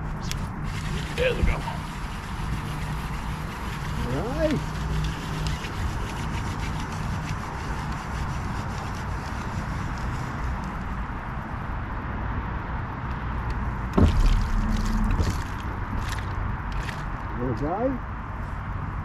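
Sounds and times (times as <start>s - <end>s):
boat motor running: 0.0s - 7.8s, 14.0s - 16.2s
loud knock: 14.0s - 15.5s
water rushing: 14.0s - 16.2s
low rumble: 14.0s - 16.6s.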